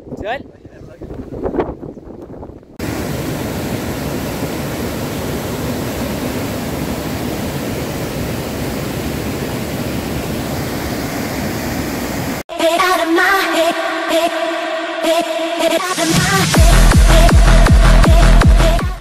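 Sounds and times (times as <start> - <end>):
waterfall roaring: 2.8 - 12.4.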